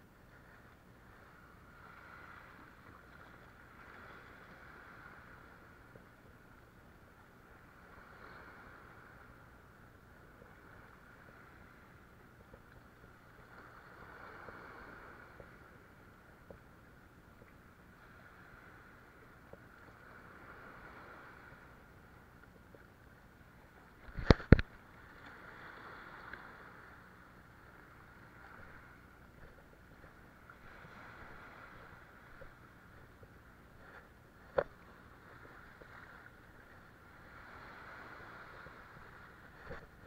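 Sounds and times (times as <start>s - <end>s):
waves washing over rocks: 24.0s - 32.6s, 33.8s - 40.0s.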